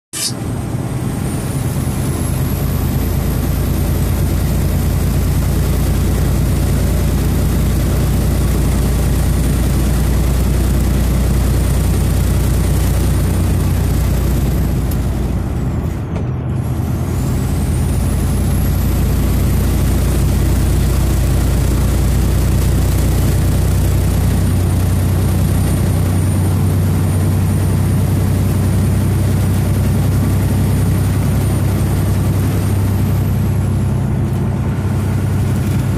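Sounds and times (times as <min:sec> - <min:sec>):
engine drone and road noise: 0:00.0 - 0:35.9
thin high whine: 0:00.1 - 0:00.4.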